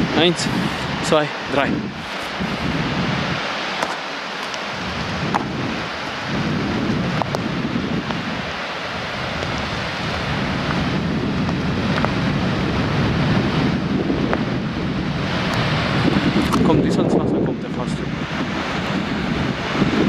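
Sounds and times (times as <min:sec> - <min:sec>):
steady hiss: 0:00.0 - 0:12.2
wind buffeting microphone: 0:00.0 - 0:20.0.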